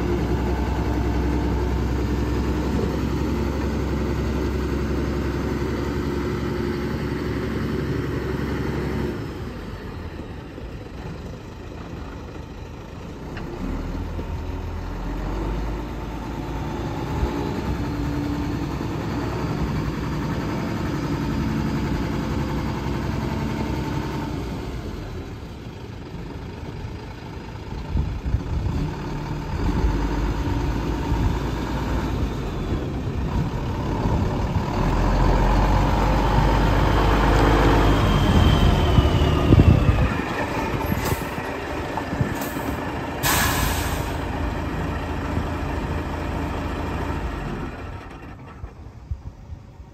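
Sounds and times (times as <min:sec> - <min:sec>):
truck diesel engine running: 0:00.0 - 0:49.9.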